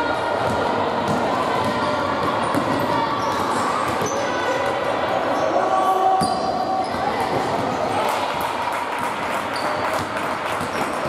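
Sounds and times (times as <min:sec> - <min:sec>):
voices of players and spectators: 0:00.0 - 0:11.0
basketball bouncing on wooden court: 0:00.4 - 0:04.2
sneakers squeaking: 0:00.4 - 0:08.0, 0:09.5 - 0:11.0.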